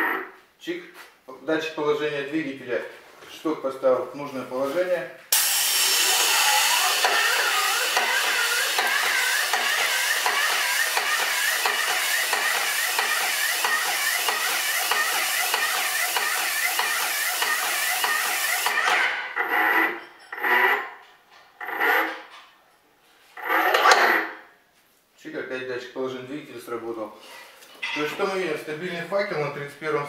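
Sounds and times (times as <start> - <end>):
paint sprayer hissing: 5.3 - 18.8.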